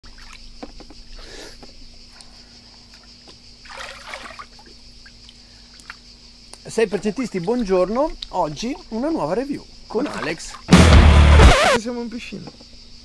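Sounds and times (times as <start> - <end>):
water sloshing: 0.0 - 0.8, 2.9 - 6.1, 6.7 - 10.7
crickets chirping: 0.0 - 13.0.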